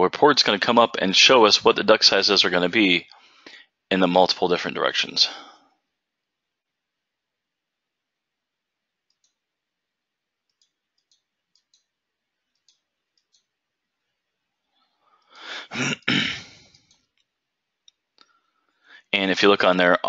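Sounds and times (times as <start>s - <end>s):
faint mouse clicks: 9.1s - 9.4s, 10.4s - 11.9s, 12.5s - 13.6s, 16.6s - 18.4s
man clearing his throat: 15.5s - 16.7s.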